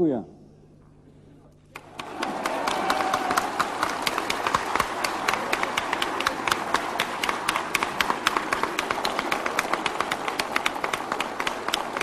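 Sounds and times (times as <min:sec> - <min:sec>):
group applauding: 0:01.7 - 0:12.0.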